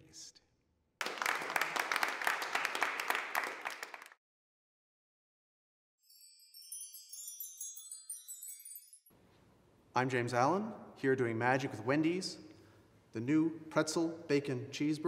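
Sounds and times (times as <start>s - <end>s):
audience applause: 1.0s - 4.2s
tinkling chime sparkle effect: 6.0s - 9.2s.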